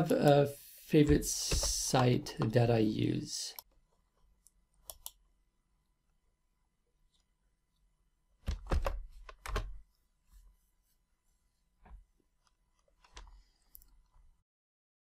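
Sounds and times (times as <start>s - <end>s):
computer keyboard keystrokes: 4.8s - 5.2s, 8.4s - 9.8s.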